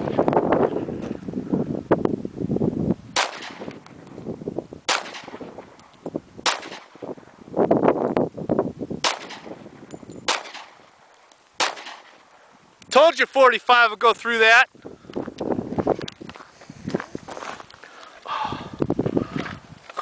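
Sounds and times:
wind on microphone: 0.0 - 10.9, 14.7 - 20.0
pistol shots: 3.2 - 3.8, 4.9 - 5.5, 6.4 - 7.0, 9.0 - 9.6, 10.2 - 10.8, 11.6 - 12.2.

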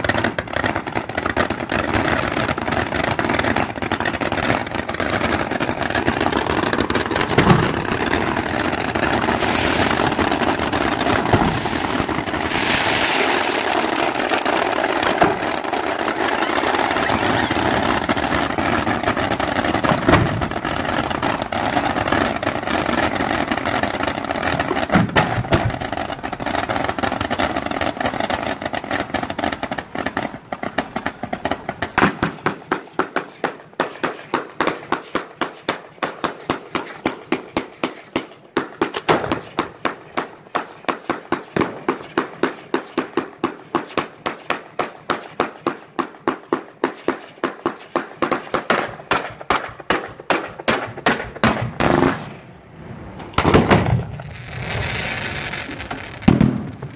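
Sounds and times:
fireworks fountains roaring: 0.0 - 33.3, 49.3 - 56.9
sharp firework launch shots: 7.3 - 8.3, 9.1 - 14.1, 15.0 - 15.6, 19.9 - 20.6, 24.9 - 25.8, 31.0 - 32.8, 47.9 - 56.9.

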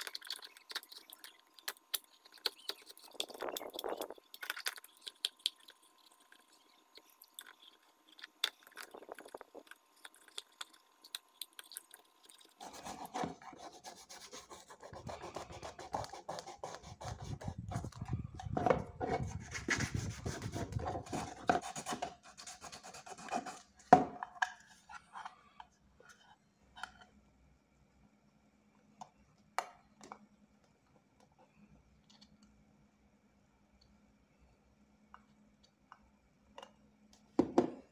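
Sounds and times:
knife scraping plastic: 0.0 - 10.7, 12.2 - 23.8
sandpaper rubbing: 19.2 - 23.6.

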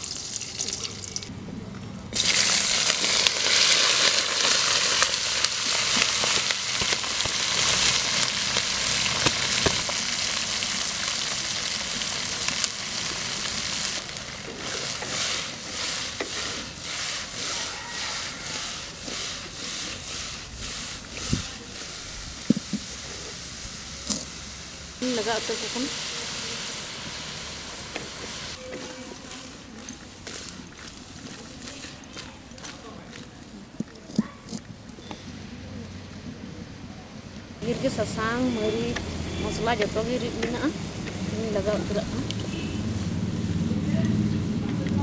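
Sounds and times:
fish sizzling in hot oil: 2.2 - 28.6.

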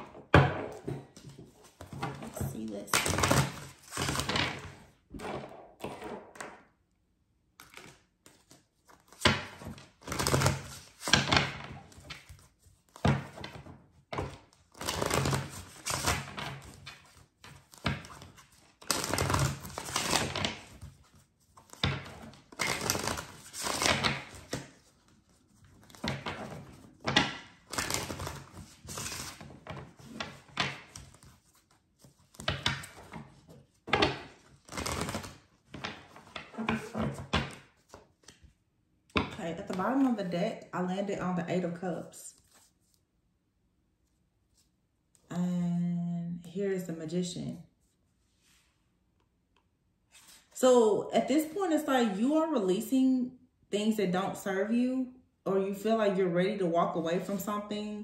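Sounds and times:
cards being shuffled: 1.1 - 4.8, 7.6 - 38.6.

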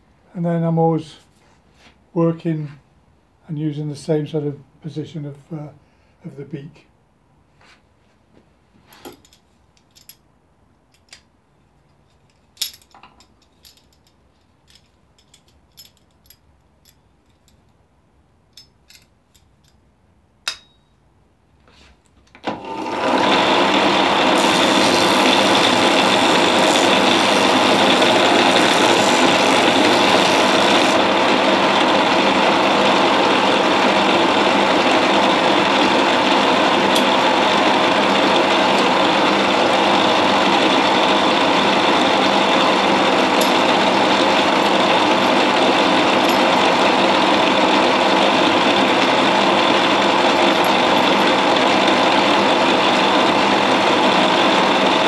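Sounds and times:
sander motor running: 22.5 - 55.0.

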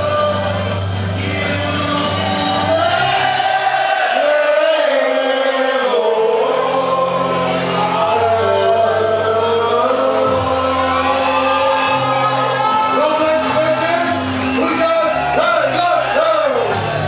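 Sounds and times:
choir singing slow song: 0.0 - 12.4.

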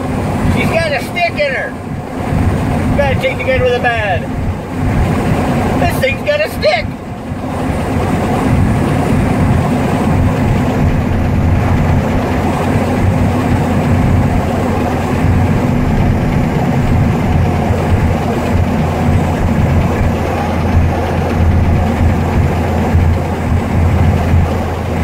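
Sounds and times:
truck engine drone: 0.0 - 25.0
tyre and road noise: 0.0 - 25.0.

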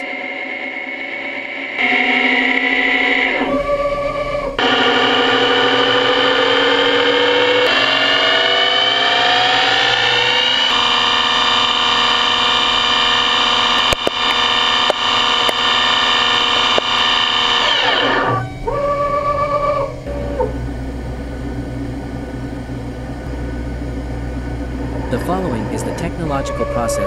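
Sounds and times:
machine spindle whining: 0.0 - 27.0
sharp clicks: 13.7 - 18.4.

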